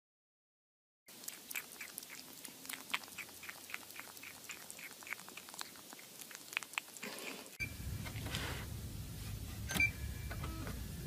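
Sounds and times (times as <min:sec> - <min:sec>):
kitten chewing plastic lid: 0:01.1 - 0:07.6.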